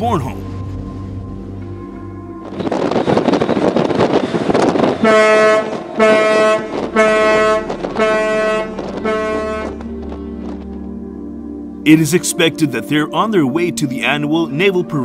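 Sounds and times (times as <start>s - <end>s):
wind and sea noise: 0.0s - 10.9s
ship's horn short blasts: 3.0s - 10.0s.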